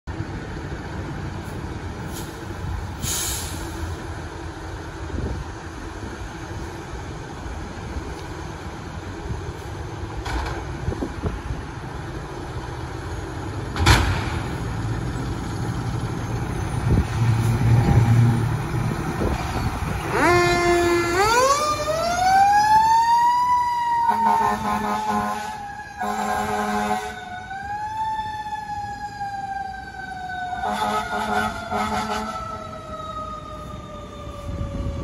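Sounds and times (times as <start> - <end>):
fire truck engine pulling away: 0.1 - 35.0
siren winding up and falling: 19.3 - 24.8
air horn blast: 20.1 - 21.6, 24.1 - 27.2, 30.6 - 32.4.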